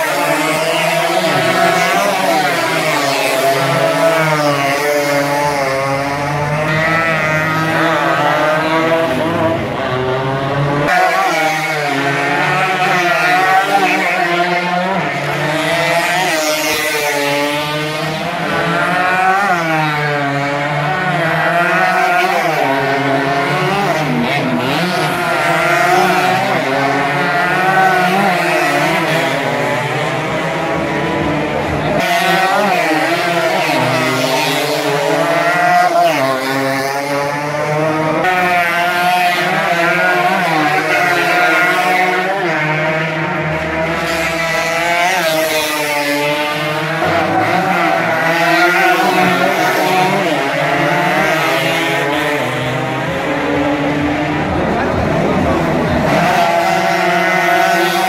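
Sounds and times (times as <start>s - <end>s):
motorcycle engines revving: 0.0s - 58.0s.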